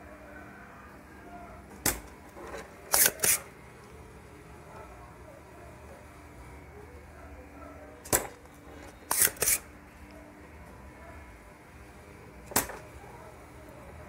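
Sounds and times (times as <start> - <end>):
desoldering pump snapping: 1.7 - 3.9, 8.0 - 9.7, 12.4 - 12.9.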